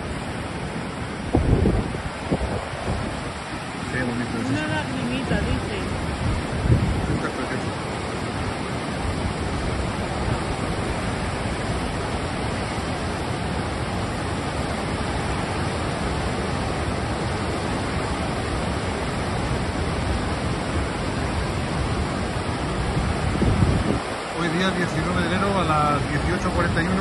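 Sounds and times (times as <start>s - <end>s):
rush of falling water: 0.0s - 27.0s.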